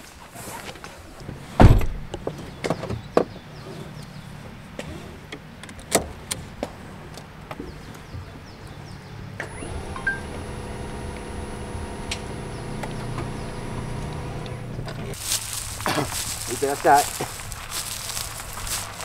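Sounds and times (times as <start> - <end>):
car door shutting: 1.6 - 2.1, 9.4 - 15.2.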